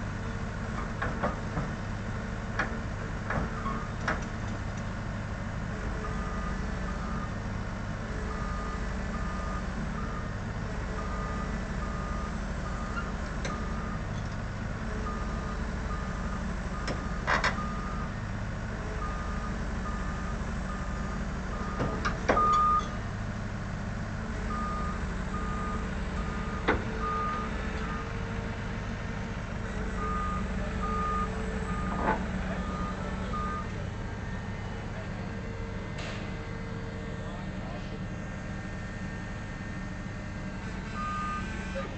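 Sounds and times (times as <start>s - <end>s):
engine running: 0.0s - 41.9s
crane travel alarm beeping: 5.8s - 7.4s, 8.1s - 14.3s, 14.9s - 18.2s, 18.8s - 23.0s, 24.4s - 28.2s, 29.5s - 34.7s, 40.7s - 41.9s.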